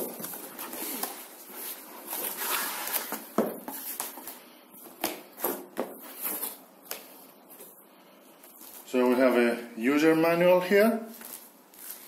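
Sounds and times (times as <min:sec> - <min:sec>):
cardboard rustling and scraping: 0:00.0 - 0:04.4.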